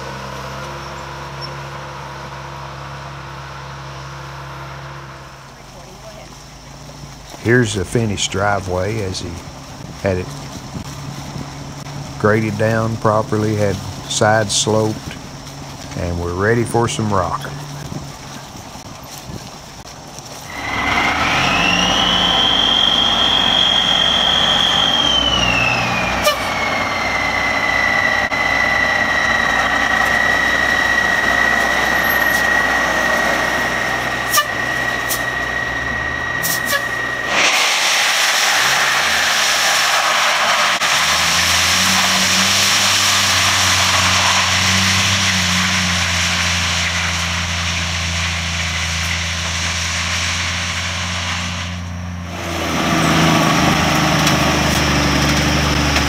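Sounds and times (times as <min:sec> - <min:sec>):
low engine rumble: 0:00.0 - 0:56.0
truck engine high whine: 0:00.0 - 0:56.0
rushing noise: 0:07.4 - 0:56.0.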